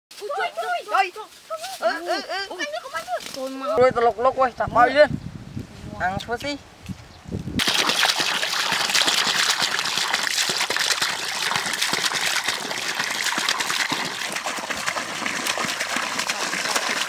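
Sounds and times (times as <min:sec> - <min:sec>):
water pouring into a pool: 0:07.6 - 0:17.0.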